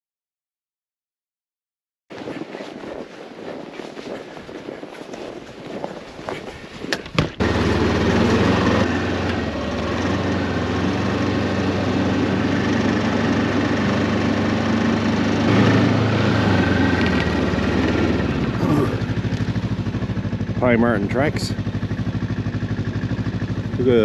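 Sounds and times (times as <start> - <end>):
snowmobile engine running: 2.2 - 24.0.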